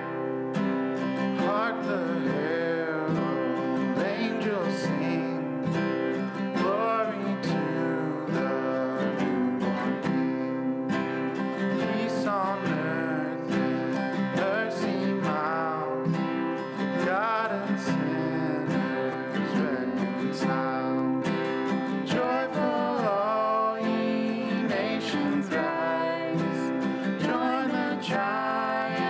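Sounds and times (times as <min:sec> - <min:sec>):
acoustic guitar music: 0:00.0 - 0:29.0.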